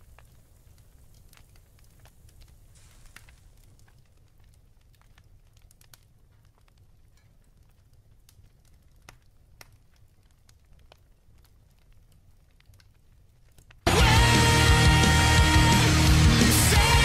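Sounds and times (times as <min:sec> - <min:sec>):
campfire crackling: 0:00.0 - 0:17.0.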